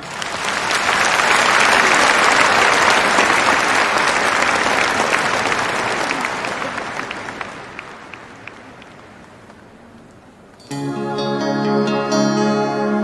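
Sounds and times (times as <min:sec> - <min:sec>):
large audience applauding: 0:00.0 - 0:09.8.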